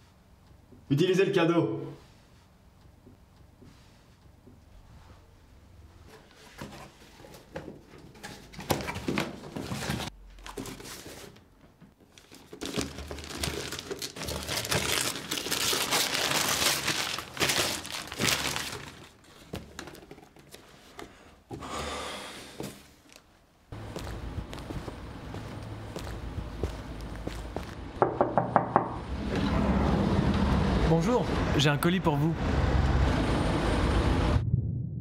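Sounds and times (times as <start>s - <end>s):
wrapping paper crinkling and tearing: 12.1s - 19.9s.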